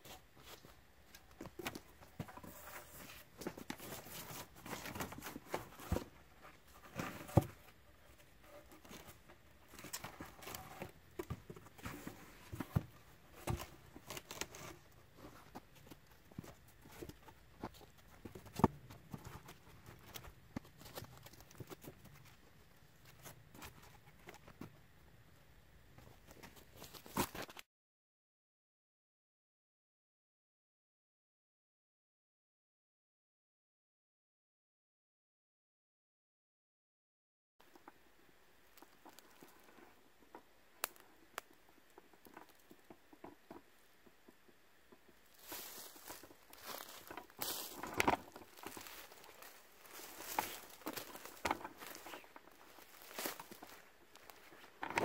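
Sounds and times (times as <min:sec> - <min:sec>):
faint ticks and crackles: 0:37.6 - 0:55.0.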